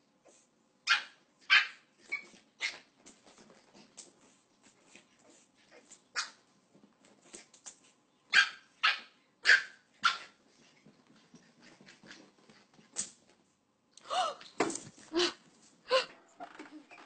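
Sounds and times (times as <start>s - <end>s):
puppy barking: 0.9s - 1.8s, 8.3s - 10.4s.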